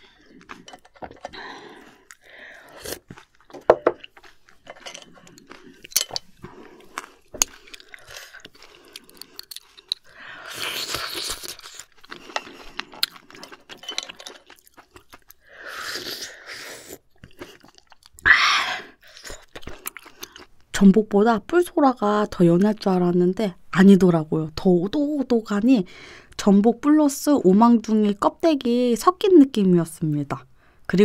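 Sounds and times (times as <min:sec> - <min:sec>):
chewing with sharp clicks: 0:00.1 - 0:15.4, 0:17.1 - 0:18.2, 0:19.1 - 0:20.6.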